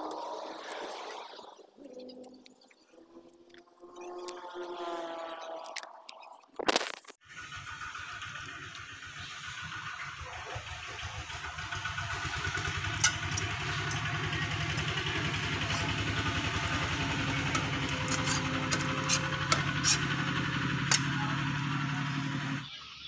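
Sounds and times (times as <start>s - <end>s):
engine idling: 7.2s - 22.8s
metal utensils clicking on pot: 12.2s - 20.2s.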